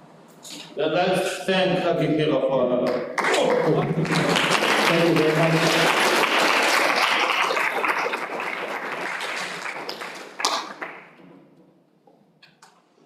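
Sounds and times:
audience applauding: 0:03.2 - 0:11.2.

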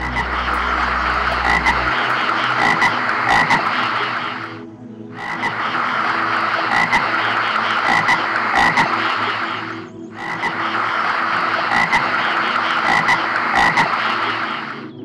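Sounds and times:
chorus of animal calls: 0:05.2 - 0:15.0.

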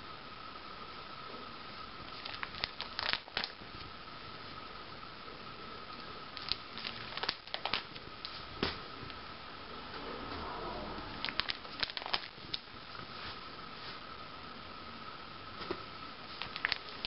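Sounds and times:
faint high hum: 0:00.0 - 0:17.0
plastic album pages turning: 0:02.1 - 0:03.9, 0:06.4 - 0:08.8, 0:11.2 - 0:12.7, 0:16.3 - 0:17.0.

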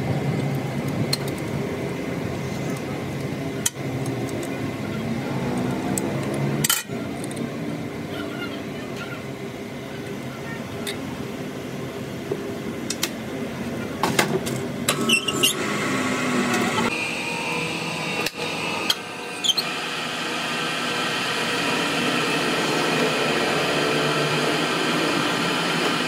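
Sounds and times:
metal lathe humming: 0:14.9 - 0:26.0.

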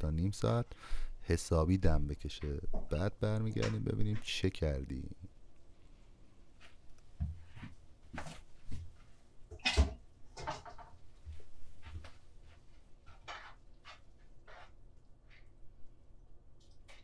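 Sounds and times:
cookware knocking and scraping: 0:13.1 - 0:14.0.

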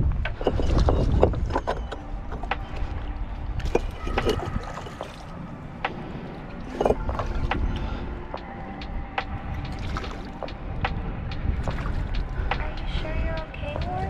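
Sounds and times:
wind buffeting microphone: 0:00.0 - 0:14.0
light water splashing: 0:03.6 - 0:05.4.

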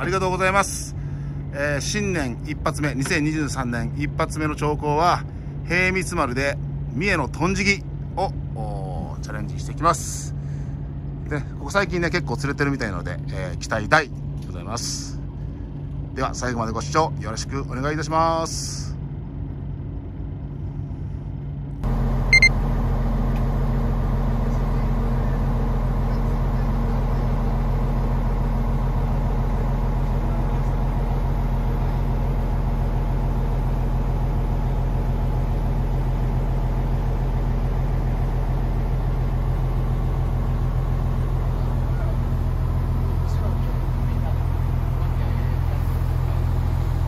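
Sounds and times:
boat engine droning: 0:00.0 - 0:47.0
double electronic beep: 0:22.3 - 0:22.6.

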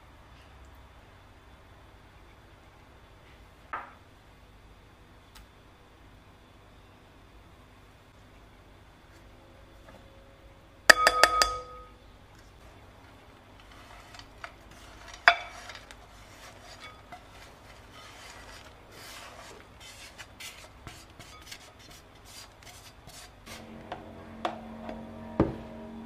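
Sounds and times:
pan clinking against glass bowl: 0:10.9 - 0:12.0
dry mix scraping out of pan: 0:13.5 - 0:23.9
steady low tone: 0:23.5 - 0:26.0.

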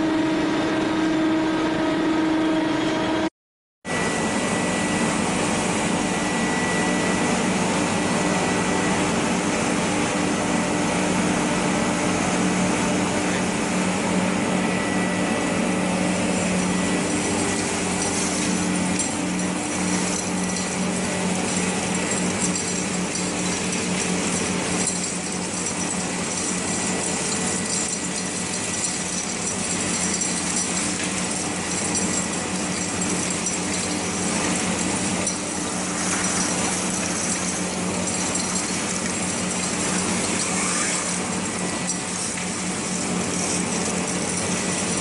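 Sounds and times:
low machine hum: 0:03.9 - 0:45.0
stones rattling up a hose: 0:16.6 - 0:45.0.

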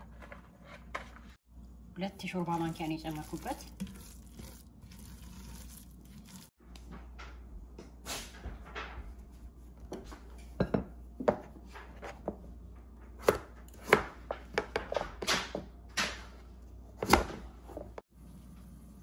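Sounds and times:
knife chopping on cutting board: 0:13.2 - 0:15.0.

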